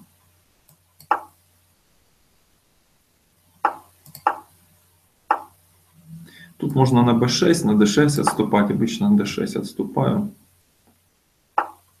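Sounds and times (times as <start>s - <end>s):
chess move knocks: 1.1s - 1.4s, 3.6s - 4.5s, 5.3s - 5.5s, 11.6s - 11.8s.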